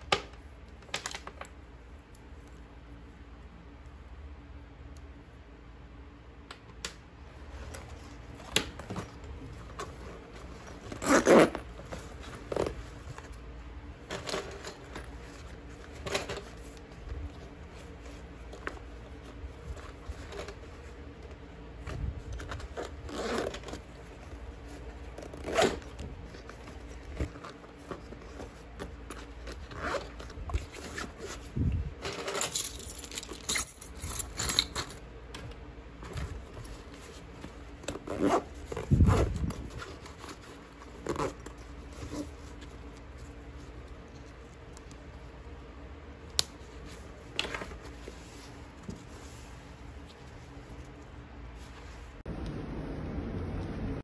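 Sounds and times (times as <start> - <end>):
zipper pulled: 10.6 - 12.8, 22.2 - 24.0, 24.7 - 31.5, 37.8 - 42.6
keys jingling: 32.1 - 35.0
fabric rustling: 35.9 - 52.3.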